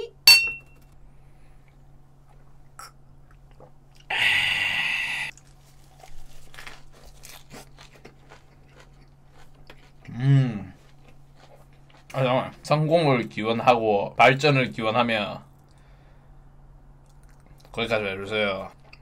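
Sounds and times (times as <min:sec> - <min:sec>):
crunching bite into lettuce: 0:05.3 - 0:10.1
chewing: 0:05.3 - 0:12.2, 0:17.0 - 0:17.8.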